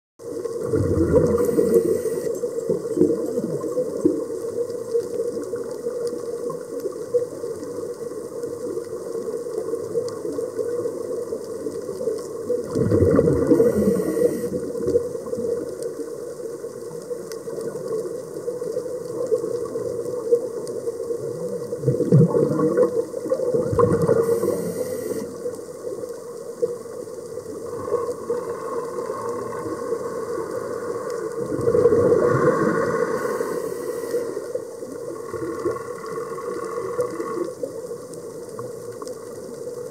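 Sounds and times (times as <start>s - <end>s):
exhaled bubbles gurgling: 0.2s - 39.9s
regulator inhale hiss: 1.3s - 2.6s, 13.4s - 14.8s, 24.1s - 25.5s, 32.4s - 34.7s.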